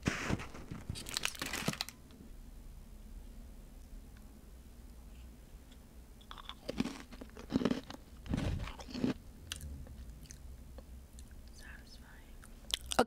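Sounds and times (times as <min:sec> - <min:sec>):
cookie crunching: 0:06.2 - 0:10.4.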